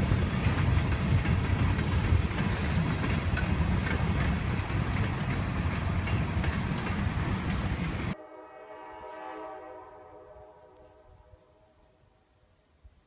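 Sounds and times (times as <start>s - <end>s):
wheels clicking over rail joints: 0.0s - 8.2s
train cars rolling past: 0.0s - 10.0s
faint train horn: 8.1s - 12.4s.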